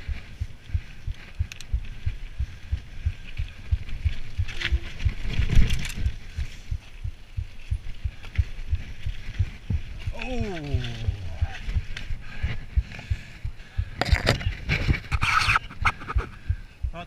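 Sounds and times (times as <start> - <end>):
bike rattle: 0.9 - 7.0.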